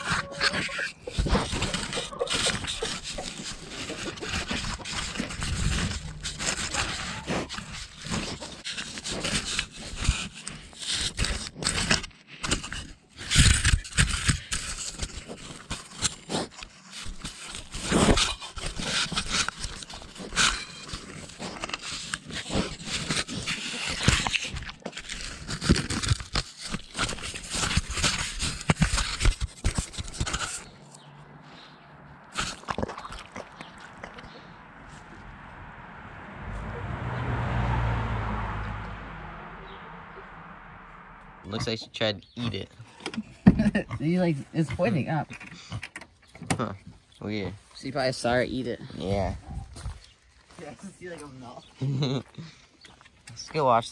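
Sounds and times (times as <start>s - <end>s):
scraping and rustling: 0.0s - 35.3s
pig rooting in dirt: 0.0s - 35.7s, 41.4s - 53.9s.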